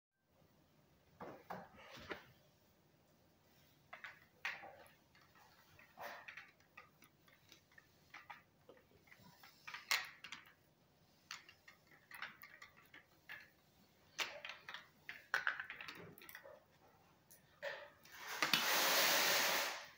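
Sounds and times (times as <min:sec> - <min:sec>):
marbles rattling down plastic track: 0:04.0 - 0:10.6, 0:11.3 - 0:13.5, 0:14.1 - 0:16.4.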